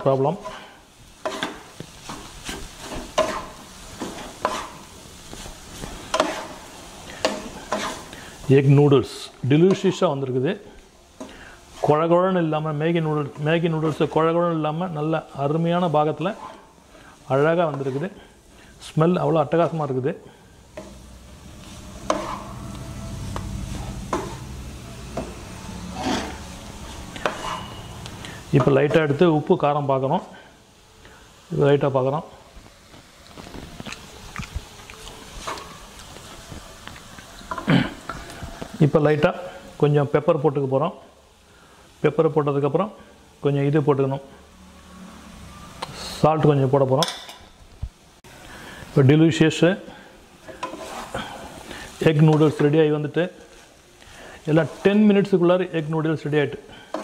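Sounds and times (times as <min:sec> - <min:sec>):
wooden spatula scraping frying pan: 0:00.0 - 0:10.4, 0:11.2 - 0:29.7, 0:32.6 - 0:34.2, 0:35.2 - 0:39.8, 0:49.8 - 0:57.0
frying sizzle: 0:00.0 - 0:57.0
wooden spatula knocking pan: 0:01.2 - 0:04.8, 0:06.1 - 0:06.5, 0:22.0 - 0:22.4, 0:24.0 - 0:24.5.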